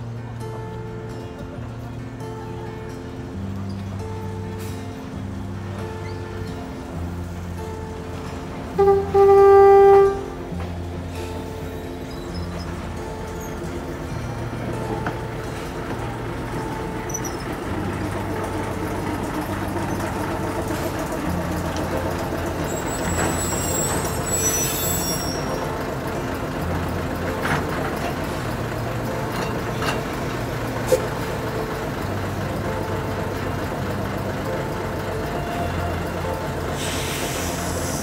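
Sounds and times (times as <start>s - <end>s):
locomotive mechanical drone: 0.0s - 38.0s
steam hissing: 15.4s - 26.4s, 36.5s - 38.0s.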